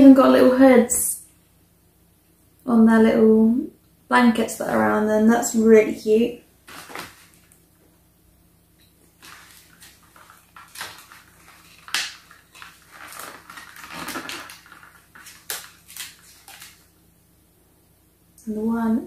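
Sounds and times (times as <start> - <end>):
packaging rustling and crinkling: 6.6 - 7.6, 9.0 - 17.0.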